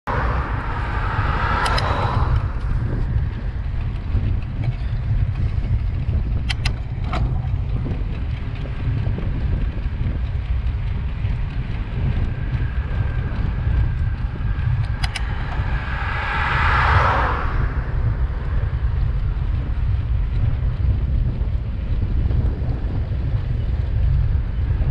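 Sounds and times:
wind rumbling over microphone: 0:00.0 - 0:24.9
car passing: 0:00.1 - 0:04.4, 0:11.8 - 0:19.9
sharp clicks: 0:01.6 - 0:02.2, 0:06.4 - 0:07.3, 0:14.8 - 0:15.4.

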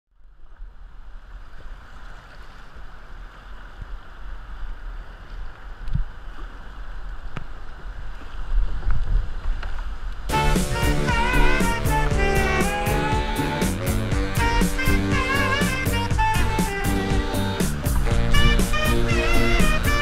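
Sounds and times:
music: 0:10.3 - 0:20.0.

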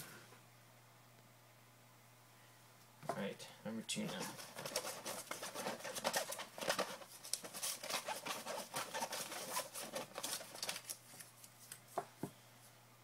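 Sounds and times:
paper slips rustling in a cap: 0:04.1 - 0:11.7.

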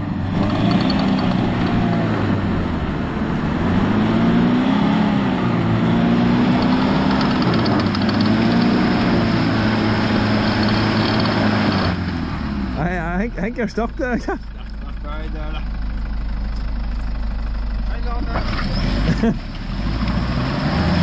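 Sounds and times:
engine revving: 0:00.0 - 0:21.0
wheels churning in mud: 0:06.5 - 0:12.0.

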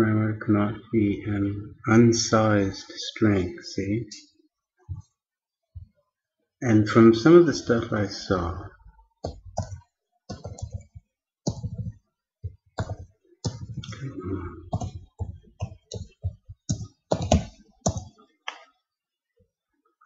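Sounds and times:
typing on computer keyboard: 0:09.2 - 0:11.9, 0:12.8 - 0:13.9, 0:14.7 - 0:18.2.

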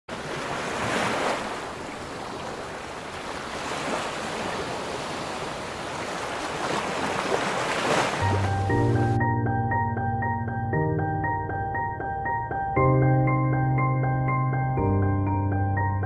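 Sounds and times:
sea water sloshing and splashing: 0:00.1 - 0:08.7.

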